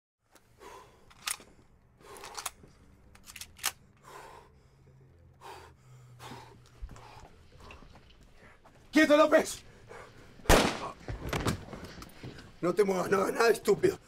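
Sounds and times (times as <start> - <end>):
man breathing heavily: 0.4 - 3.1, 3.7 - 8.8, 9.6 - 12.6.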